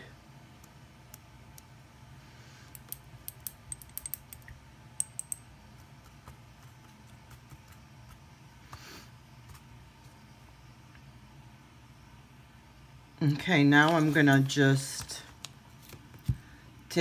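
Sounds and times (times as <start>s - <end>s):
clicks and taps of hard objects: 2.7s - 8.8s.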